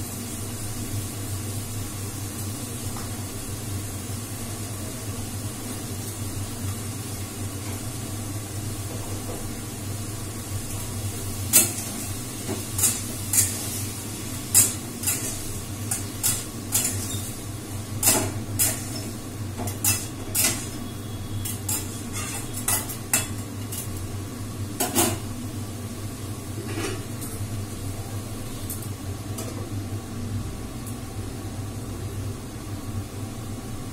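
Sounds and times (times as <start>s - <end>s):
metal spatula scraping a pan: 19.8s - 23.4s.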